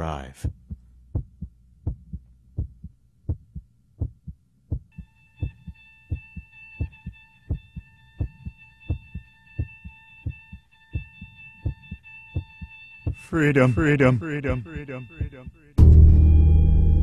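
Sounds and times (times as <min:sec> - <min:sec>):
heartbeat double thump: 0:00.4 - 0:06.2, 0:06.8 - 0:13.2.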